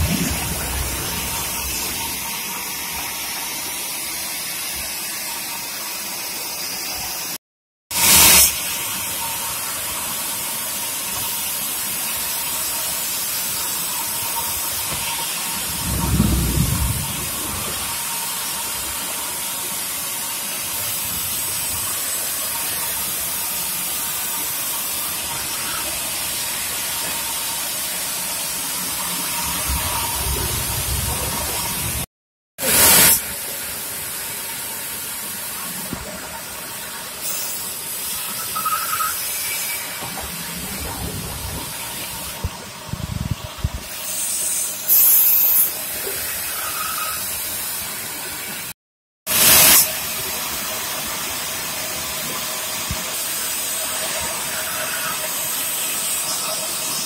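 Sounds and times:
low rumble: 0:00.0 - 0:02.3, 0:15.7 - 0:17.9, 0:29.4 - 0:32.0.

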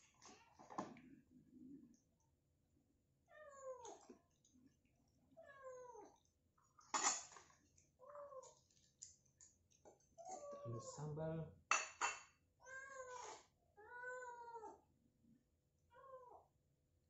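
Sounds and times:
cat meowing: 0:10.2 - 0:11.0, 0:12.6 - 0:14.8.

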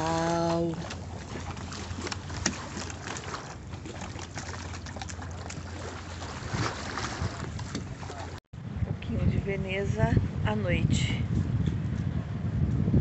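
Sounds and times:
water splashing against stone steps: 0:00.0 - 0:08.4.

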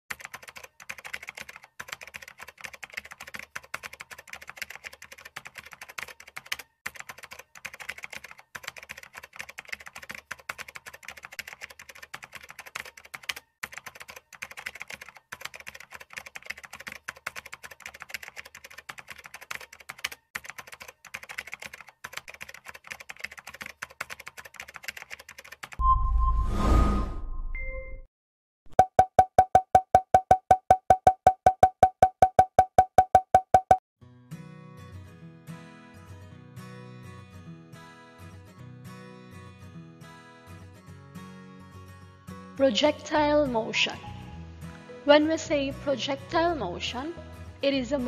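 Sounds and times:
keyboard typing clicks: 0:00.1 - 0:25.8.

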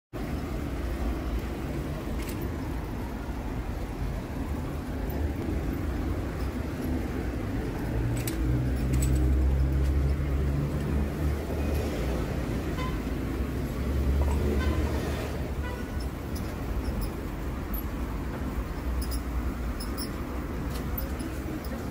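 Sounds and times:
traffic rumble: 0:00.1 - 0:21.9
vehicle passing: 0:00.4 - 0:21.9.

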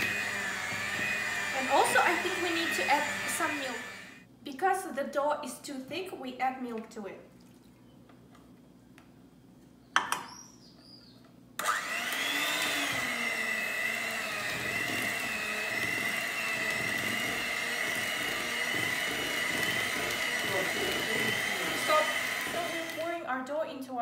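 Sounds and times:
beaters churning thick batter: 0:00.0 - 0:04.2, 0:11.8 - 0:23.2
electric mixer whining: 0:00.0 - 0:04.2, 0:11.6 - 0:23.2.

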